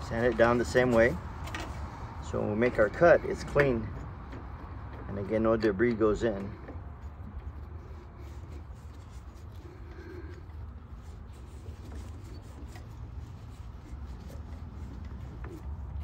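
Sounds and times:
sandpaper rubbing copper pipe: 7.2s - 16.0s.

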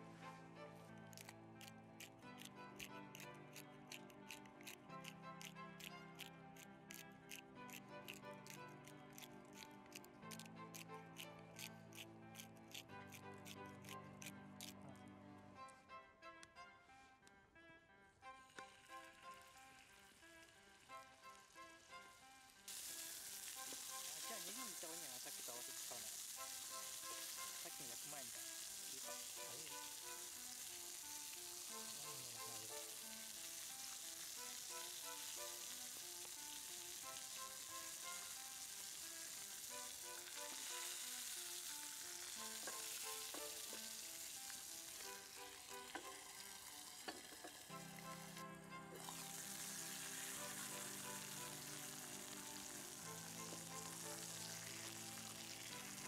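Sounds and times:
light background music: 0.0s - 56.0s
meat sizzling in a skillet: 18.6s - 56.0s.

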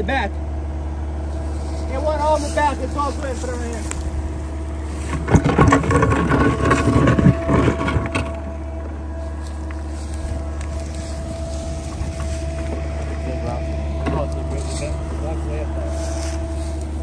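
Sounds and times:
excavator diesel engine whining: 0.0s - 17.0s
bucket scraping through soil: 4.8s - 13.4s.

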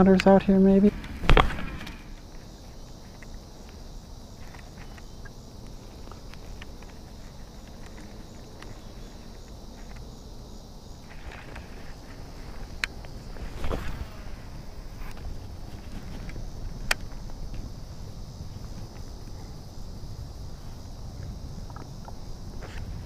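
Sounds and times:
high insect buzz: 0.0s - 23.0s.

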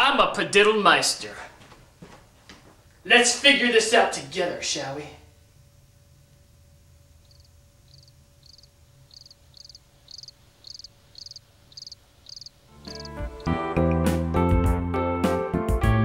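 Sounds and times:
cricket chirping: 6.3s - 13.5s
music: 12.7s - 16.0s.

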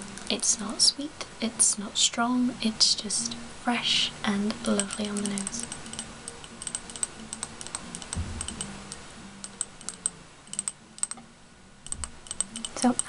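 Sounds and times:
soft handling knock: 8.2s - 8.6s.

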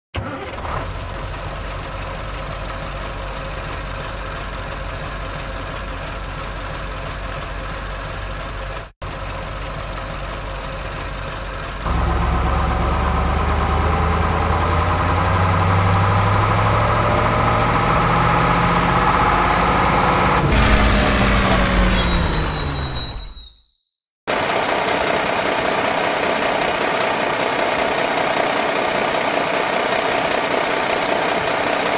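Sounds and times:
truck engine idling: 0.3s - 18.2s, 24.3s - 31.9s.

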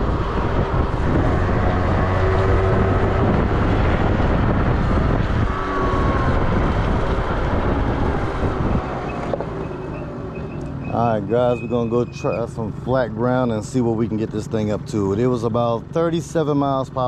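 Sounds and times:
wind noise on microphone: 0.0s - 11.9s.

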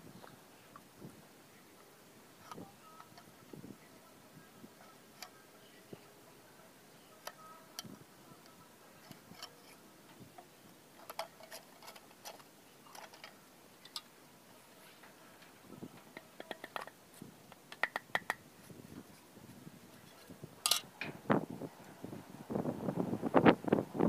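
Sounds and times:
low steady hiss: 0.0s - 24.0s
bamboo sticks knocking on wood: 16.2s - 18.4s.

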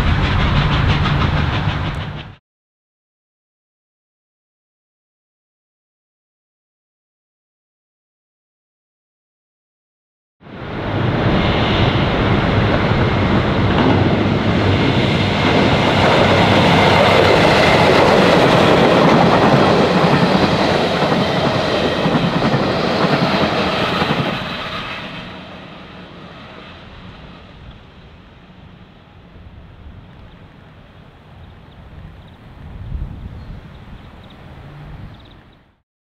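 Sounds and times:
electric train passing: 0.0s - 2.4s, 10.5s - 35.8s.

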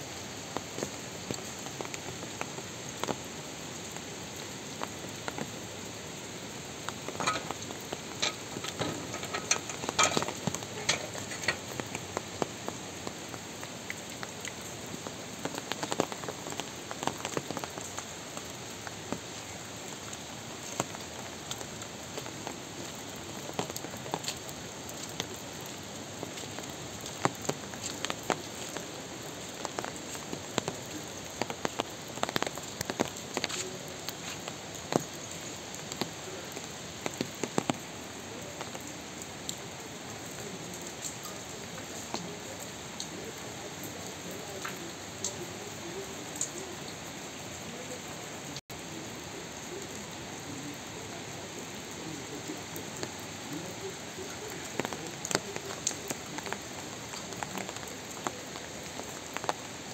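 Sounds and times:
raindrops tapping: 0.0s - 59.9s
steady rain hiss: 0.0s - 59.9s.

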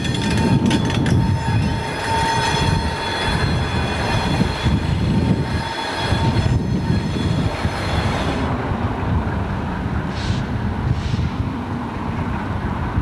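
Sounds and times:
wheels squealing: 0.0s - 8.6s
diesel locomotive rumbling: 0.0s - 13.0s.

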